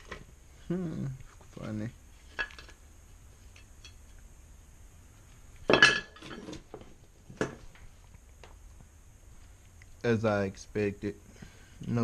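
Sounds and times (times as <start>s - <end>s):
metal parts clanking on table: 5.7s - 6.6s.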